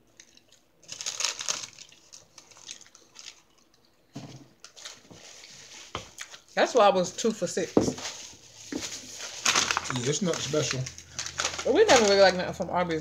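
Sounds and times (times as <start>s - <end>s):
crunching while eating: 0.0s - 4.0s, 9.2s - 12.1s
paper wrappers crinkling: 0.2s - 3.9s, 4.6s - 12.7s.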